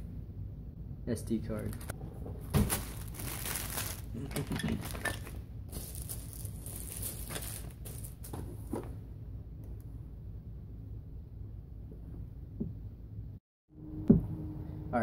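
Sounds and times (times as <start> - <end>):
plastic bags crinkling: 2.5 - 8.5.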